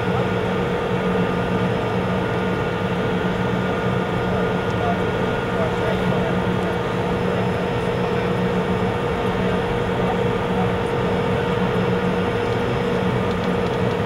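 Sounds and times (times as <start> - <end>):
turbine engine idling: 0.0 - 14.0.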